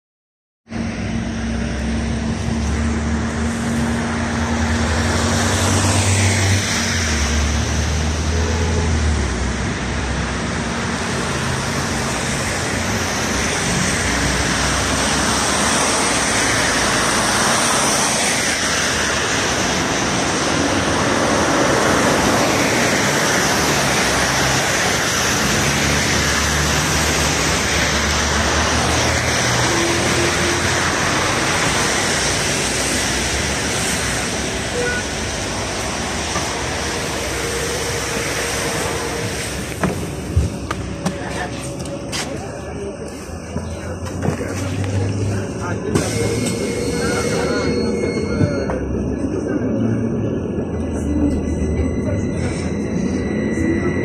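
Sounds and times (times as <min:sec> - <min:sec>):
tyres hissing on wet road: 0:00.8 - 0:48.4
low engine rumble: 0:18.9 - 0:54.0.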